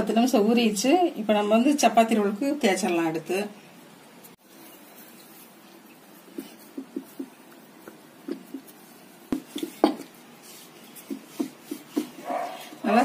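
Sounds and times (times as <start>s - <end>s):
rolling pin tapping on wooden board: 6.4s - 10.1s, 11.0s - 12.2s.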